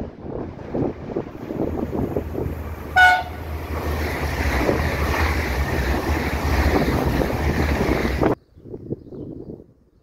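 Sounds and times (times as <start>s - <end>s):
train passing close by: 0.0s - 8.4s
wind on microphone: 0.0s - 10.0s
train horn blast: 2.9s - 3.5s.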